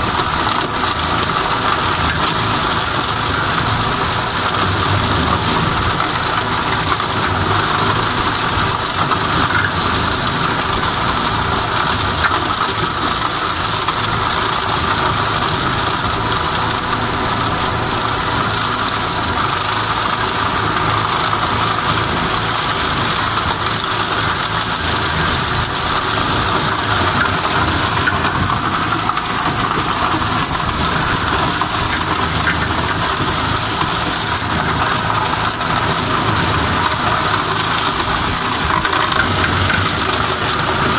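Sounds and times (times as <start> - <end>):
flail mower shredding brush: 0.0 - 40.9
tractor engine running: 0.0 - 40.9.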